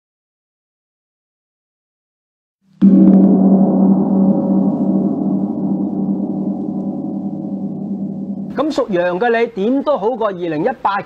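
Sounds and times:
gong ringing: 0:02.8 - 0:09.5.

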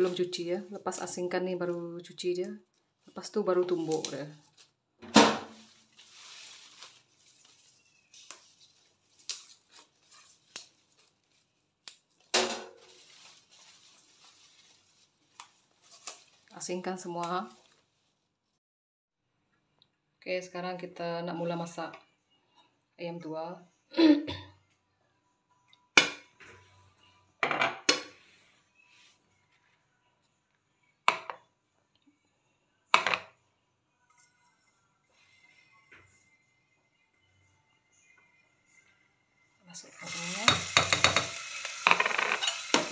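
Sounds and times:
leaves rustling: 0:05.5 - 0:11.5, 0:12.8 - 0:16.5
metal pot clanking on stove: 0:40.5 - 0:42.9.

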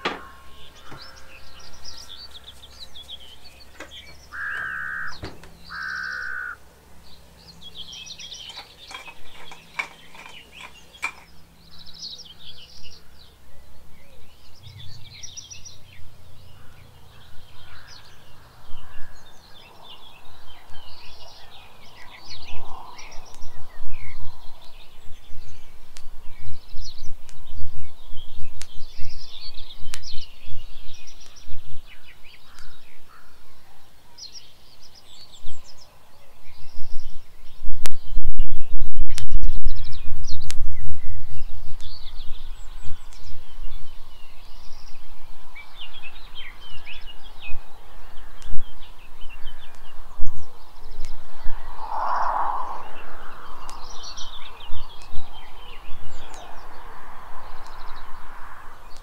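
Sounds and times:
birds calling and chirping: 0:00.0 - 0:38.6, 0:39.5 - 0:59.0
sharp clicks: 0:02.2 - 0:06.5, 0:08.2 - 0:11.4
low rumble on microphone: 0:36.6 - 0:58.3.

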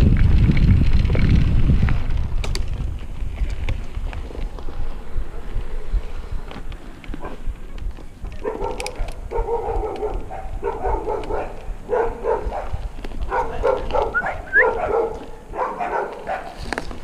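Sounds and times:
low rumble: 0:00.0 - 0:07.6
dog yelping: 0:08.4 - 0:12.7, 0:13.3 - 0:16.6
dog barking: 0:08.4 - 0:16.6.

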